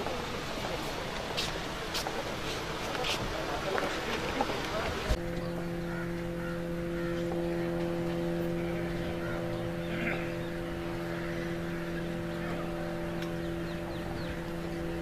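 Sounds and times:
faint murmuring: 0:00.0 - 0:15.0
steady machine drone: 0:00.0 - 0:15.0.

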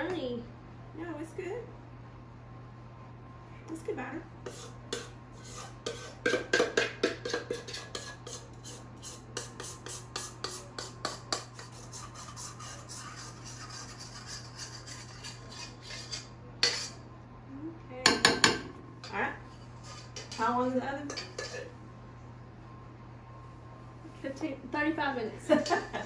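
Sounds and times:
spoon scraping metal bowl: 0:04.4 - 0:17.0, 0:19.0 - 0:21.8
spoon knocking on bowl: 0:06.3 - 0:07.6.

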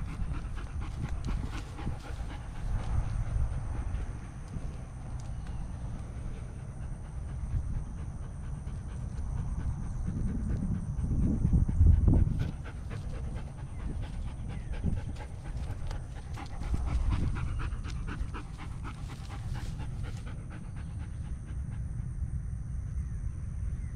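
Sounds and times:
dog panting: 0:00.0 - 0:22.2
low rumble: 0:00.0 - 0:23.9.

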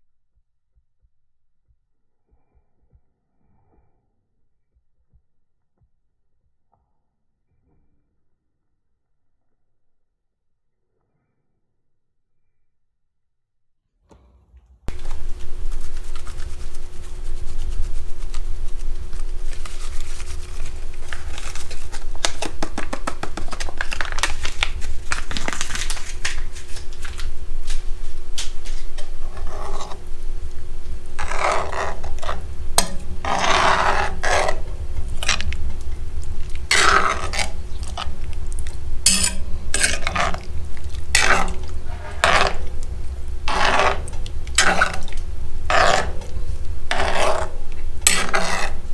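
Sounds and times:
steady low rumble: 0:24.0 - 0:48.9
metal spoon scraping a pot: 0:28.6 - 0:48.9.

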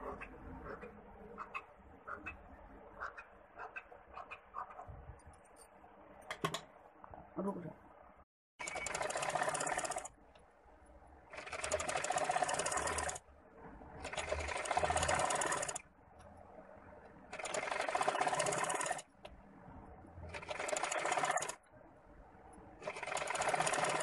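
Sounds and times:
sewing machine stitching: 0:08.6 - 0:10.1, 0:11.3 - 0:15.8, 0:17.3 - 0:19.1, 0:20.3 - 0:21.7, 0:22.8 - 0:24.0.

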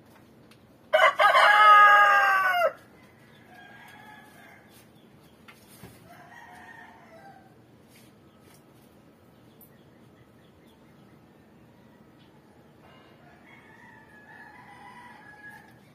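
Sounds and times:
rooster crowing: 0:00.9 - 0:02.8, 0:06.1 - 0:07.6, 0:12.8 - 0:15.9.

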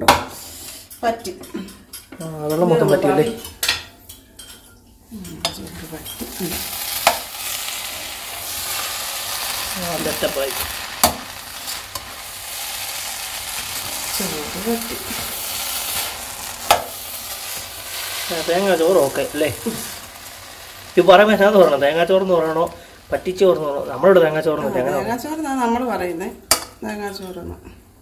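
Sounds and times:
steady sizzle: 0:00.0 - 0:28.0
spatula stirring rice: 0:06.2 - 0:24.1
spatula clacking on pot: 0:16.6 - 0:17.6.

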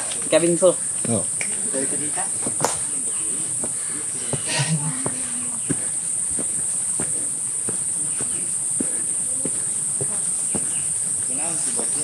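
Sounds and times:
insects chirring: 0:00.0 - 0:12.0
footsteps on trail: 0:03.5 - 0:11.8.

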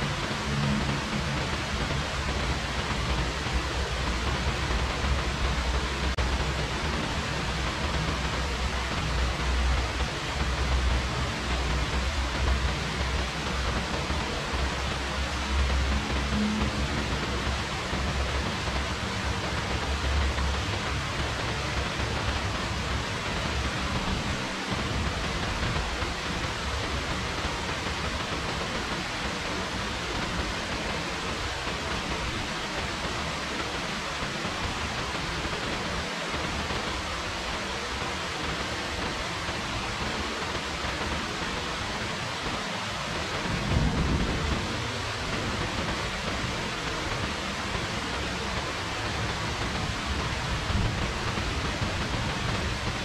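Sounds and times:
rain falling: 0:00.0 - 0:53.0
low rumble: 0:43.4 - 0:47.6.

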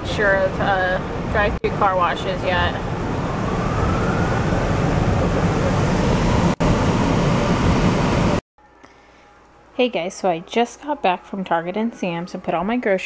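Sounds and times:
faint rising whine: 0:01.8 - 0:08.4.

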